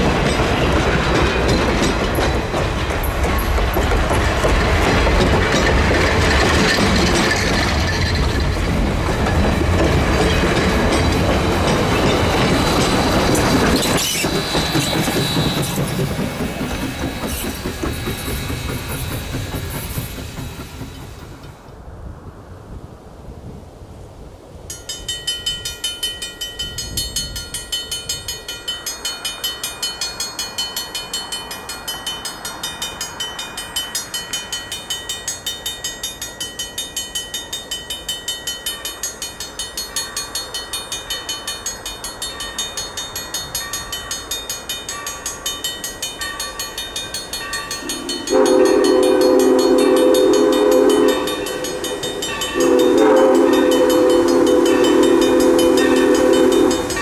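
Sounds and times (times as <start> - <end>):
crossing warning bell ringing: 0.0 - 18.8, 24.7 - 57.0
steam whistle blowing: 47.8 - 57.0.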